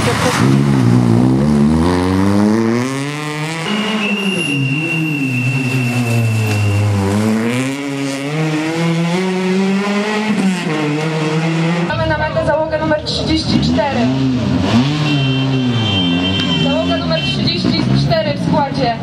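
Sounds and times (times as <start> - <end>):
rally car engine revving: 0.0 - 19.0
high squeal: 3.5 - 7.2.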